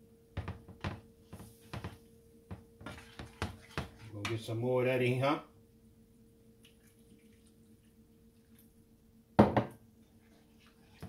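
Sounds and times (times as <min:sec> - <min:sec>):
faint steady hum: 0:00.0 - 0:11.0
liquid dripping and trickling: 0:06.6 - 0:08.8.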